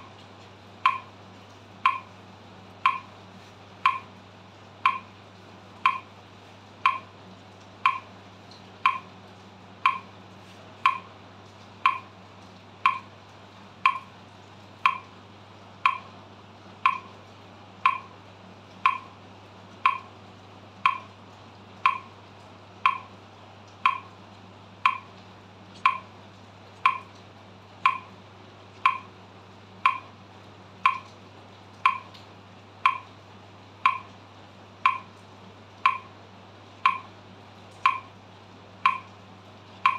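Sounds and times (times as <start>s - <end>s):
steady low hum: 0.0s - 31.2s
metronome clicking: 0.8s - 1.1s, 1.8s - 2.1s, 2.8s - 3.1s, 3.8s - 4.1s, 4.8s - 5.1s, 5.8s - 6.1s, 6.8s - 7.1s, 7.8s - 8.1s, 8.8s - 9.1s, 9.8s - 10.1s, 10.8s - 11.1s, 11.8s - 12.1s, 12.8s - 13.1s, 13.8s - 14.1s, 14.8s - 15.1s, 15.8s - 16.1s, 16.8s - 17.1s, 17.8s - 18.1s, 18.8s - 19.1s, 19.8s - 20.1s, 20.8s - 21.1s, 21.8s - 22.1s, 22.8s - 23.1s, 23.8s - 24.1s, 24.8s - 25.1s, 25.8s - 26.1s, 26.8s - 27.1s, 27.8s - 28.1s, 28.8s - 29.1s, 29.8s - 30.1s, 30.8s - 31.1s, 31.8s - 32.2s, 32.8s - 33.1s, 33.8s - 34.2s, 34.8s - 35.2s, 35.8s - 36.1s, 36.8s - 37.1s, 37.8s - 38.1s, 38.8s - 39.2s.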